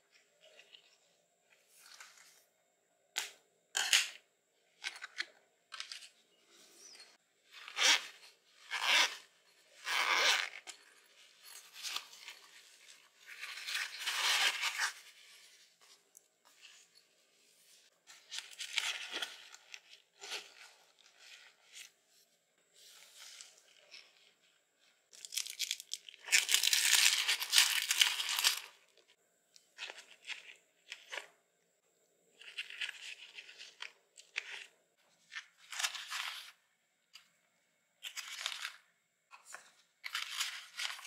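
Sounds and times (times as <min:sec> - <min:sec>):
zipper pulled open: 0:07.5 - 0:10.8.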